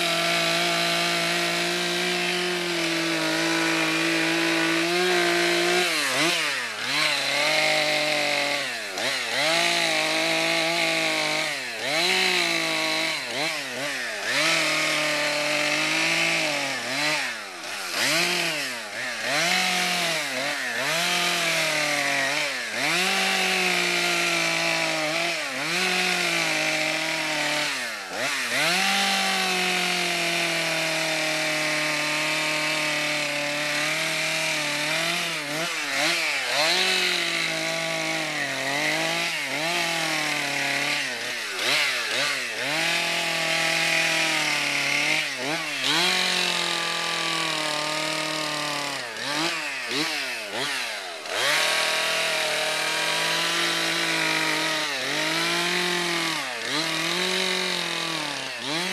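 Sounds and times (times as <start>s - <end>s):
chainsaw revving: 0.0s - 58.9s.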